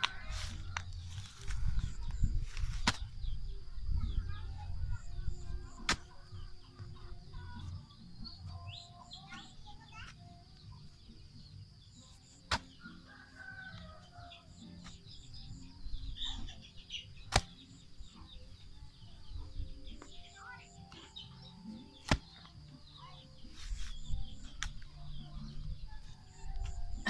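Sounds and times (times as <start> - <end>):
sharp spade strikes: 12.5 - 12.8, 17.3 - 17.6.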